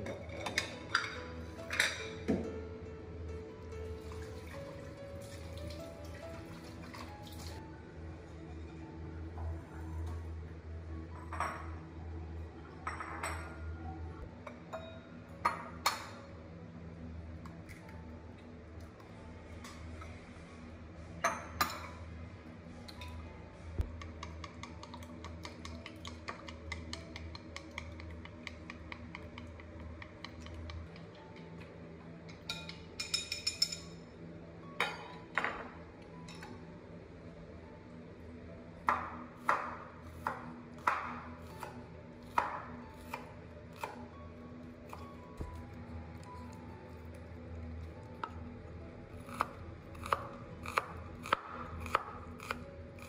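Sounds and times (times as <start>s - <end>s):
dish clinking: 12.8s - 13.6s.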